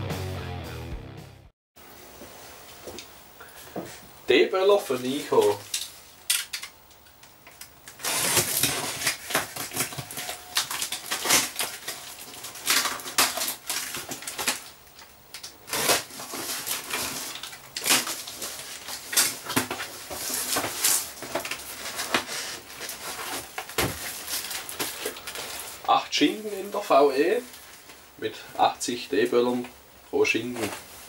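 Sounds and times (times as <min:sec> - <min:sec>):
knife slicing tape and cardboard: 0:08.0 - 0:09.8, 0:15.7 - 0:18.2.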